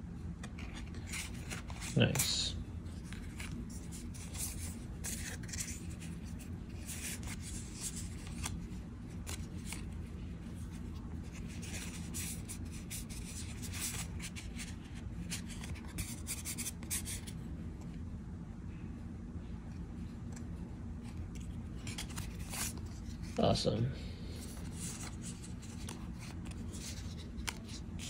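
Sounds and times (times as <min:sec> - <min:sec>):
steady low hum: 0:00.0 - 0:28.0
cards sliding and clicking: 0:00.4 - 0:10.0, 0:10.6 - 0:17.3, 0:20.2 - 0:23.4, 0:24.4 - 0:28.0.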